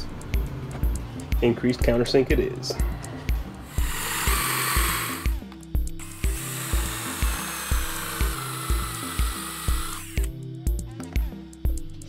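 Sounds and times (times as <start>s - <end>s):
background music with steady beat: 0.0s - 12.0s
cordless drill whining into metal: 3.7s - 5.4s, 6.0s - 10.3s.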